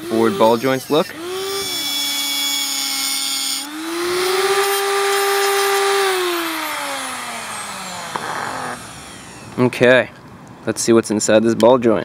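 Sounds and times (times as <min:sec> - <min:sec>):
angle grinder cutting metal: 0:00.0 - 0:09.6.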